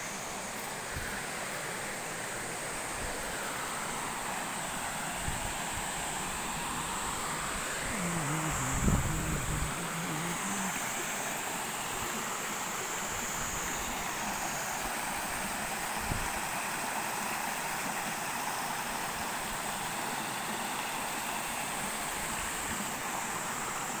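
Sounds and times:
stream water rushing over rocks: 0:00.0 - 0:24.0.

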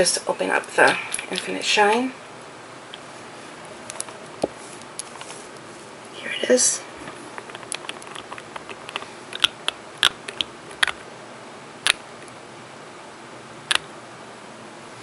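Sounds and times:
acrylic nails clicking and tapping: 0:07.4 - 0:11.0.

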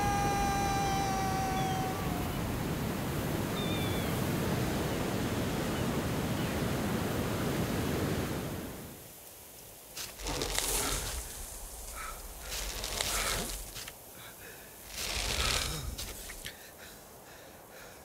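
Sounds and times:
sea surf: 0:00.0 - 0:09.0
wind: 0:00.0 - 0:18.0.

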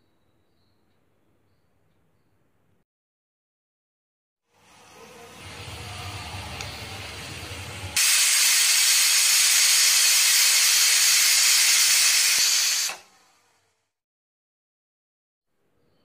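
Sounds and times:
pressure cooker steam hiss: 0:04.6 - 0:13.4
low rumble: 0:05.2 - 0:08.0.

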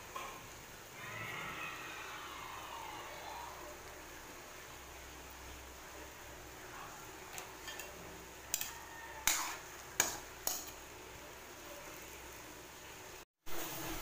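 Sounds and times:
faint steady hiss: 0:00.0 - 0:14.0
utensil scraping a wok: 0:07.3 - 0:11.1.

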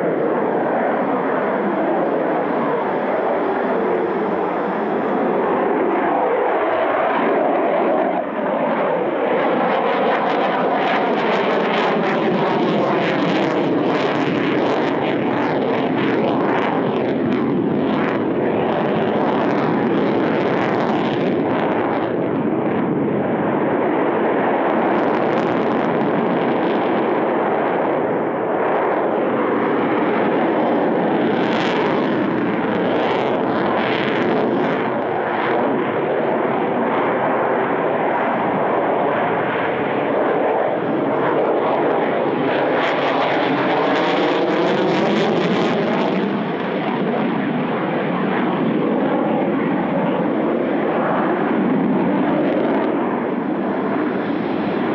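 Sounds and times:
fighter jet engines roaring: 0:00.0 - 0:54.9.

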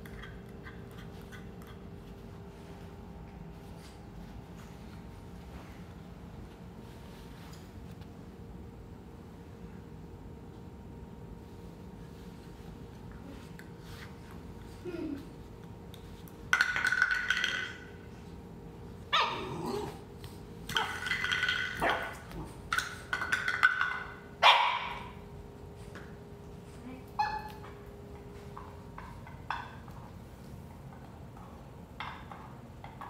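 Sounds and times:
puppy barking and yipping: 0:19.1 - 0:19.5.

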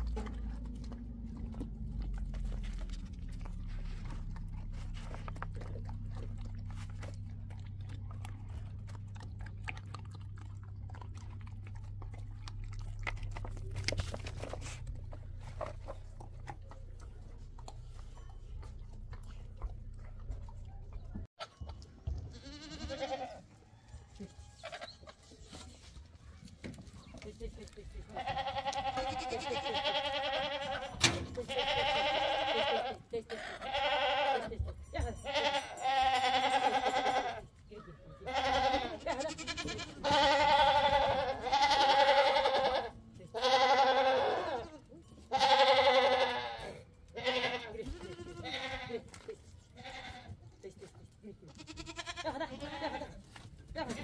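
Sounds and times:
low steady hum: 0:00.0 - 0:21.9
farm animal bleating: 0:00.0 - 0:23.6, 0:27.5 - 0:54.0
livestock bleating: 0:22.3 - 0:23.4, 0:28.1 - 0:37.5, 0:38.1 - 0:49.1, 0:49.8 - 0:50.4, 0:51.5 - 0:53.2.

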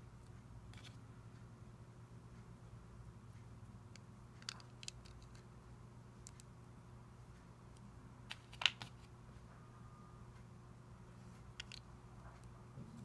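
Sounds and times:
faint steady hum: 0:00.0 - 0:13.0
plastic bricks clicking: 0:04.4 - 0:05.4, 0:11.6 - 0:11.9.

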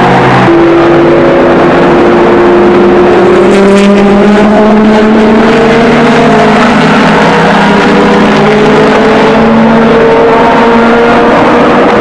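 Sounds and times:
race car engines accelerating: 0:00.0 - 0:12.0.

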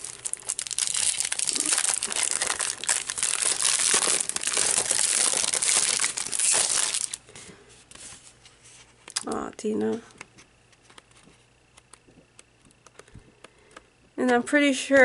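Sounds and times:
plastic packaging crinkling: 0:00.0 - 0:07.2.

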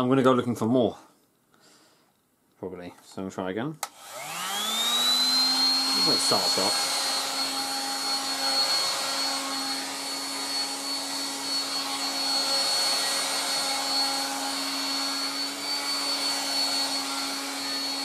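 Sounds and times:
hairdryer running: 0:03.8 - 0:18.0.

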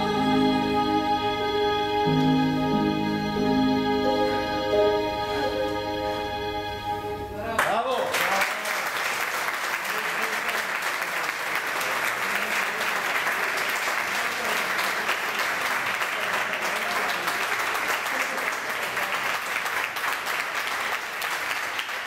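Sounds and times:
audience applauding: 0:07.6 - 0:22.0.

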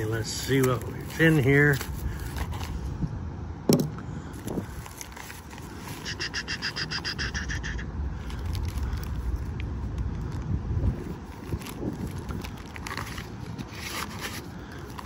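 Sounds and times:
plastic bag rustling: 0:00.0 - 0:02.9, 0:04.4 - 0:06.1, 0:10.3 - 0:15.0
rhythmic trilling animal call: 0:06.0 - 0:07.9.

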